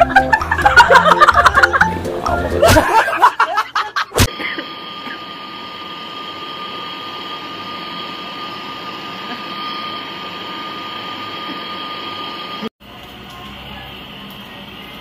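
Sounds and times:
torch flame hissing: 4.2s - 15.0s.

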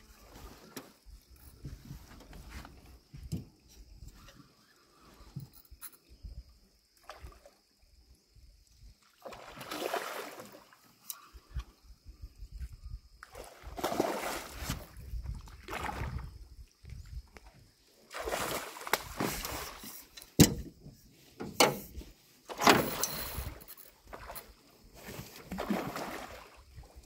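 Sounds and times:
fish splashing and thrashing: 9.2s - 10.8s, 13.3s - 16.3s, 18.1s - 20.4s, 22.5s - 26.8s.

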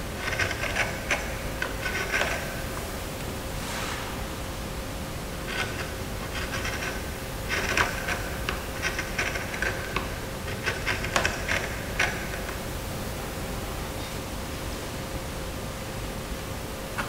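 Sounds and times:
carving gouge scraping wood: 0.2s - 2.7s, 5.4s - 12.6s.

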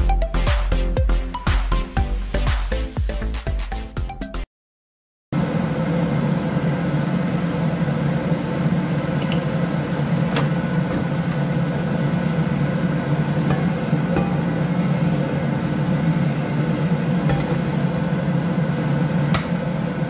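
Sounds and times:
kitchen appliance humming: 5.4s - 20.0s.

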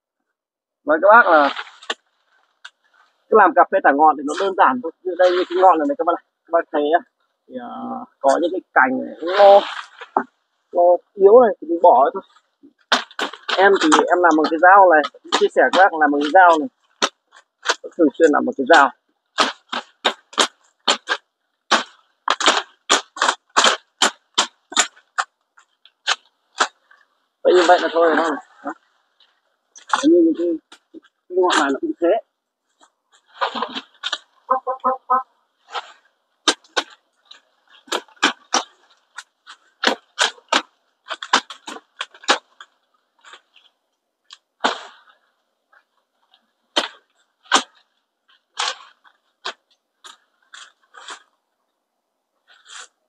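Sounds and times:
branch and leaves rustling: 1.1s - 6.6s, 8.0s - 51.4s
knife chopping branches: 12.8s - 18.4s, 19.3s - 26.8s, 36.4s - 42.5s.

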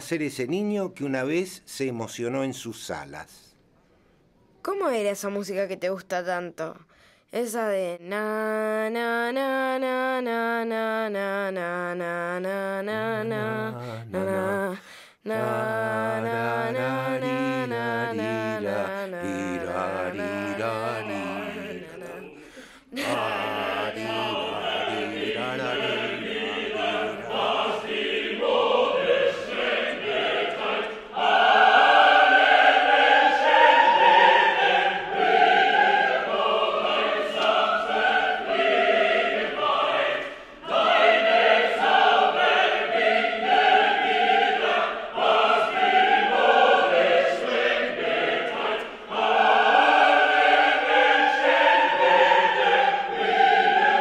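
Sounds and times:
choir singing: 8.1s - 54.0s.

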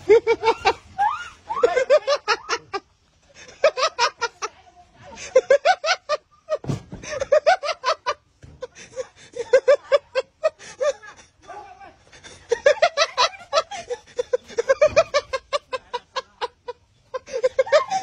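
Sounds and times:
woman laughing: 0.0s - 18.0s
low thump: 6.6s - 7.3s.

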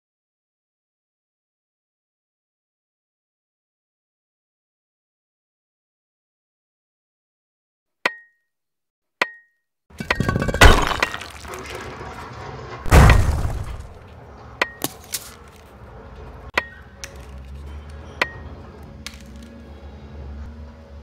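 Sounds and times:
pickaxe clinking on stone: 10.0s - 11.5s, 14.6s - 15.6s
rock breaking crash: 10.0s - 14.0s.

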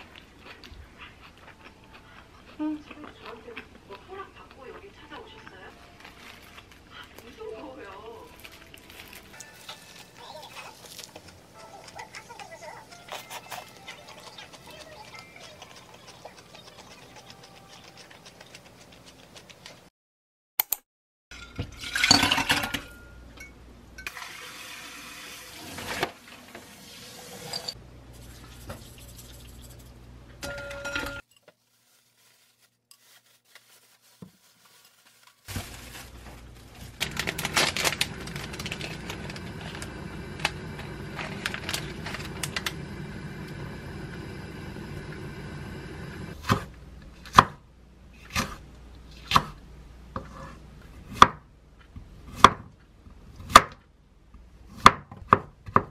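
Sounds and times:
plastic bag rustling: 5.6s - 11.5s, 31.3s - 43.0s
knife chopping on wooden board: 46.4s - 46.7s, 51.1s - 51.4s, 52.3s - 52.7s, 54.7s - 55.9s.

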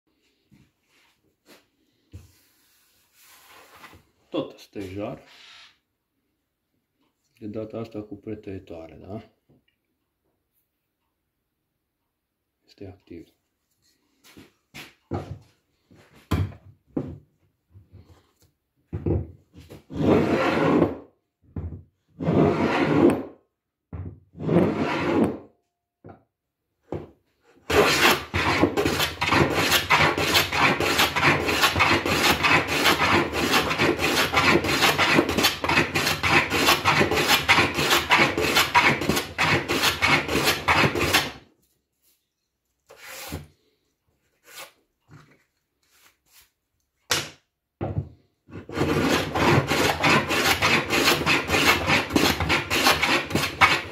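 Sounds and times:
hand plane planing wood: 19.9s - 21.0s, 22.2s - 23.4s, 24.4s - 25.4s, 27.7s - 41.4s, 48.6s - 53.9s.

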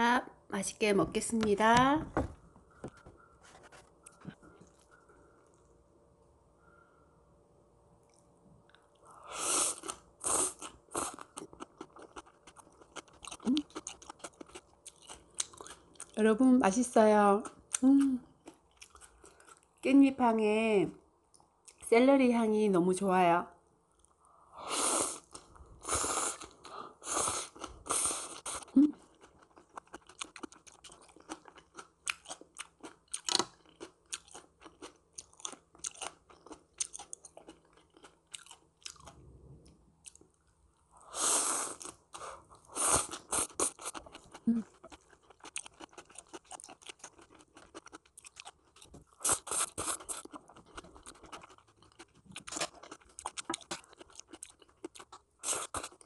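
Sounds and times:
crunchy chewing: 8.0s - 16.2s, 17.7s - 19.8s, 25.2s - 40.9s, 41.6s - 56.0s.

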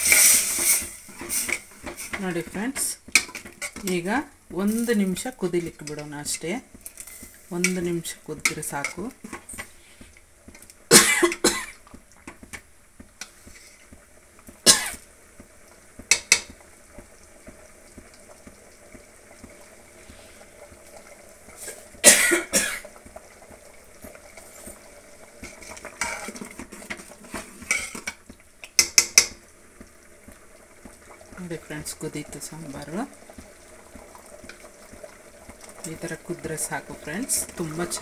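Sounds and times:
low steady background noise: 0.0s - 38.0s
steel ladle scraping a pot: 25.4s - 28.2s.

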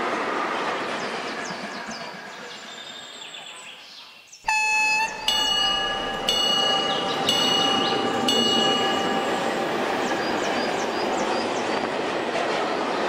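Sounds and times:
short pitched tone: 4.5s - 11.1s
level crossing warning bell: 4.5s - 11.9s
train rolling: 4.5s - 13.0s
approaching train rumble: 5.0s - 13.0s.

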